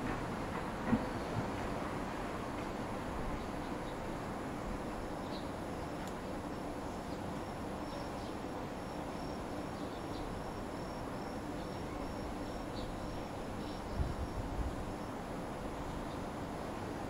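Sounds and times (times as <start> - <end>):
low town hum: 0.0 - 17.0
insect chirping: 7.4 - 15.2.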